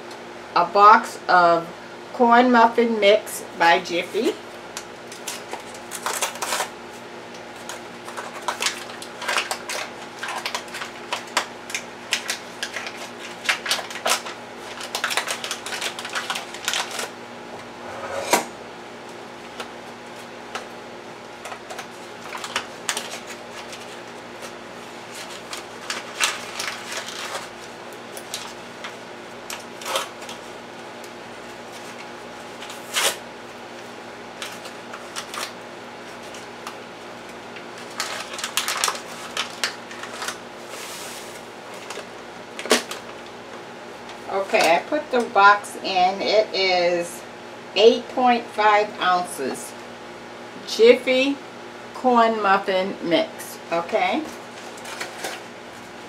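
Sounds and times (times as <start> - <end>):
faint steady hum: 0.0 - 56.0
paper bag tearing and crinkling: 5.1 - 6.8, 7.6 - 17.1, 21.6 - 28.6, 31.7 - 33.2, 37.8 - 43.2, 54.6 - 55.8.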